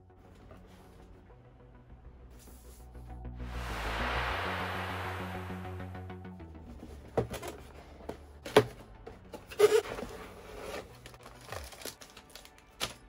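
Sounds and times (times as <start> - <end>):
plastic bags crinkling: 11.2 - 13.0.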